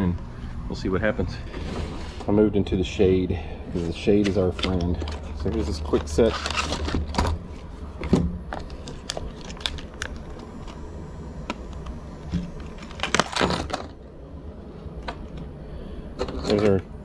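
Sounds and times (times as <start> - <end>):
plastic package being handled: 3.8 - 7.7, 8.5 - 10.8.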